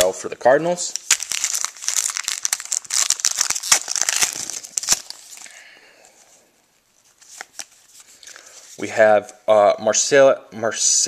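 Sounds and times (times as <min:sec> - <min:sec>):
wrapper crinkling and tearing: 0:00.8 - 0:05.6, 0:07.0 - 0:08.8.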